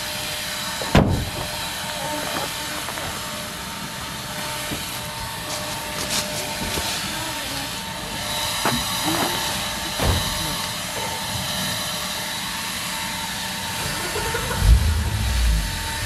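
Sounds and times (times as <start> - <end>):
small gas-powered engine whining: 0.0 - 16.0
low thump: 14.6 - 16.0.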